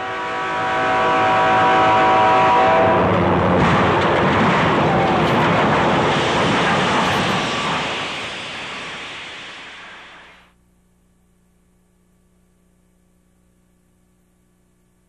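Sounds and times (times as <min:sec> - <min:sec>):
locomotive air horn chord: 0:00.0 - 0:03.4
loud crash: 0:03.0 - 0:10.4.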